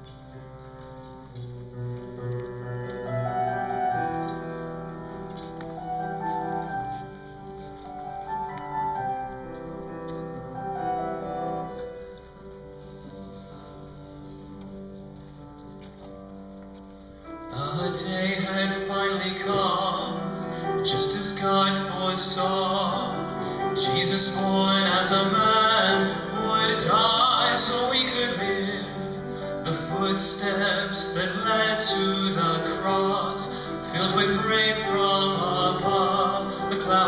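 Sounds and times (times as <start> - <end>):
person singing: 17.5 - 37.0.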